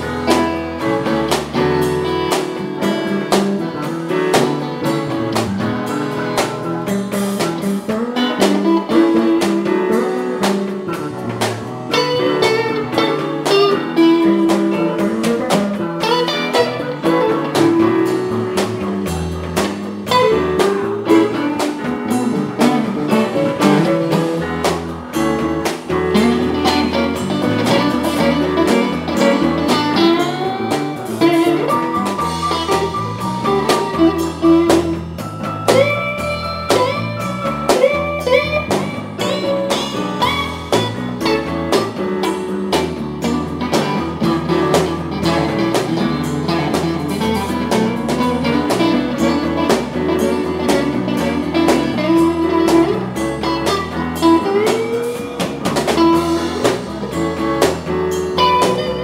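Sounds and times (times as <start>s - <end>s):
electric guitar: 0.0s - 59.0s
live rock band playing: 0.0s - 59.0s.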